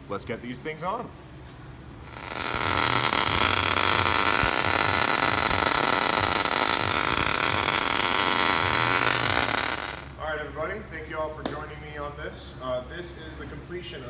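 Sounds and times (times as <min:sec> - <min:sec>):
arc welding hiss and crackle: 0:02.0 - 0:10.2.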